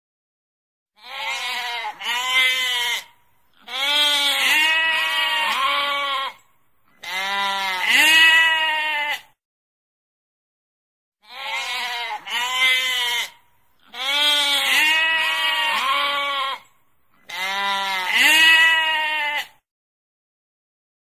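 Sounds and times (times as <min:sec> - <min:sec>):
sheep bleating: 0:01.0 - 0:09.4, 0:11.2 - 0:19.6.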